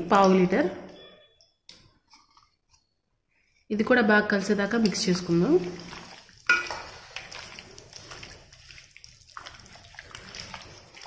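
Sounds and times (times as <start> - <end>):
hand squelching food: 4.8 - 11.0.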